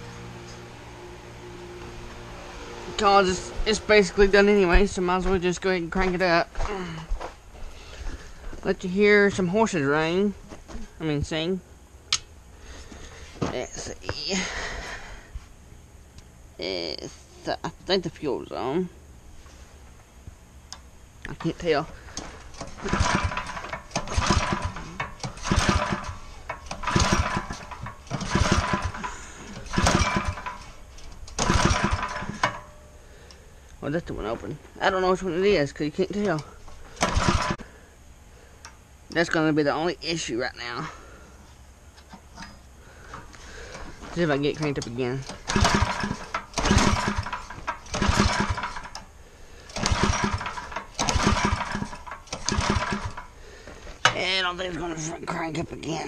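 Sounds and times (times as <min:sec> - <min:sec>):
small engine cranking: 0:21.5 - 0:32.7, 0:36.2 - 0:37.6, 0:44.5 - 0:53.4.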